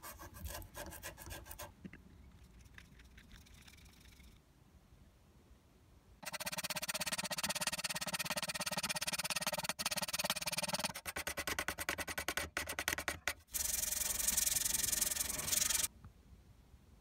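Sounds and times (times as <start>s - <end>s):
sanding pad rasping on wood: 6.3s - 15.9s.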